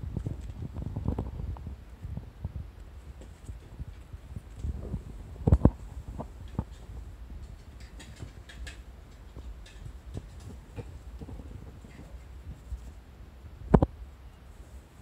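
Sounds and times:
kitten scratching on trousers: 0:09.3 - 0:13.0.

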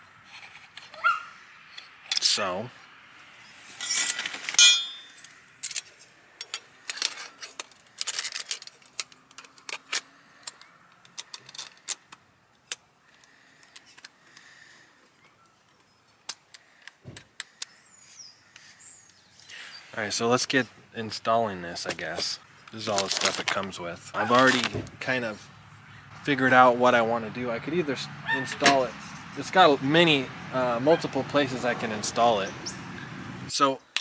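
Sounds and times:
small metal parts clinking: 0:03.8 - 0:12.2.

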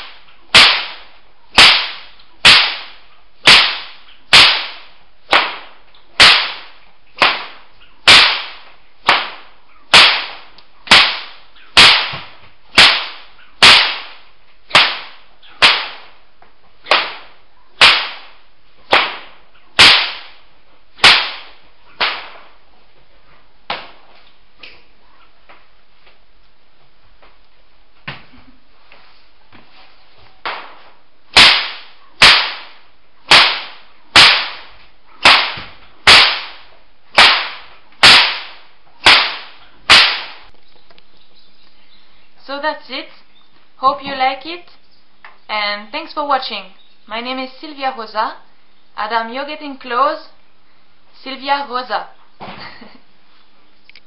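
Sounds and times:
whip cracking: 0:00.0 - 0:16.2, 0:16.8 - 0:22.6, 0:30.4 - 0:40.5.

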